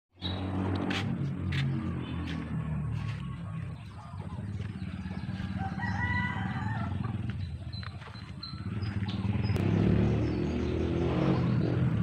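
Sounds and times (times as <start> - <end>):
rooster crowing: 4.8 - 7.2.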